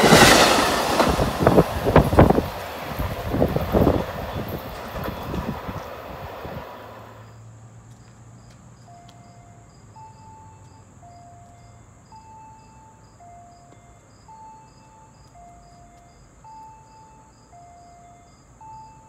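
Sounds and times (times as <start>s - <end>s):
train wheels clattering: 0.0s - 7.1s.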